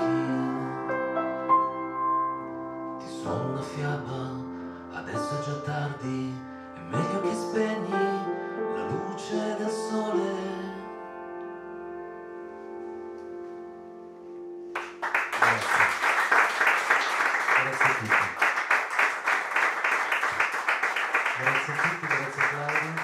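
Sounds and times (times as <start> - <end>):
man singing: 0.0 - 0.9, 3.0 - 11.0
piano playing: 0.0 - 17.0.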